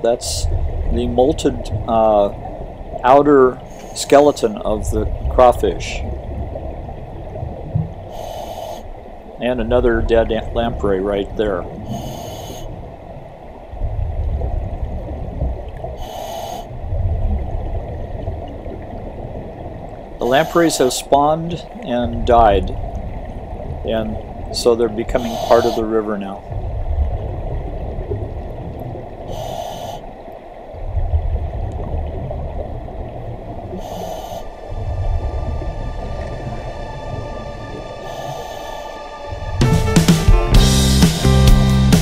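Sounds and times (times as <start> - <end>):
hissing regulator inhalation: 8.1 - 8.9, 11.8 - 12.8, 16.0 - 16.7, 25.1 - 26.0, 29.3 - 30.1, 33.7 - 34.8, 37.9 - 39.6
exhaled bubbles underwater: 9.0 - 20.8, 21.4 - 39.6.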